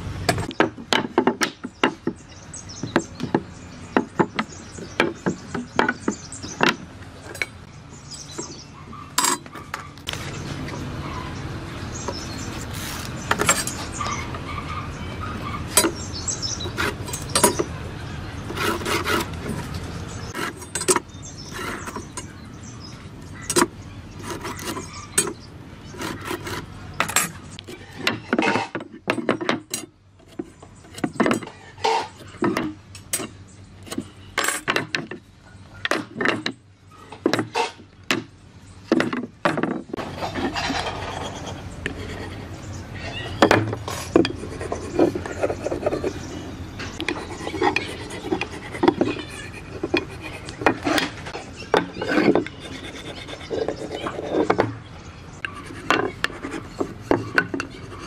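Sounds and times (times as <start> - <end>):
tools tapping on wood: 0.3 - 2.2, 2.8 - 7.6, 38.9 - 40.0, 55.9 - 57.7
marking gauge scraping timber: 12.1 - 14.4, 15.7 - 17.7, 18.4 - 22.4, 23.4 - 35.2, 39.0 - 42.5, 43.4 - 54.8, 55.4 - 58.0.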